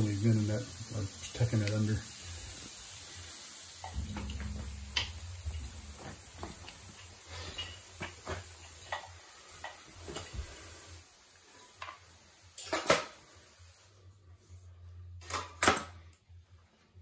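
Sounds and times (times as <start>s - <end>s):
metallic clatter: 3.9s - 8.1s.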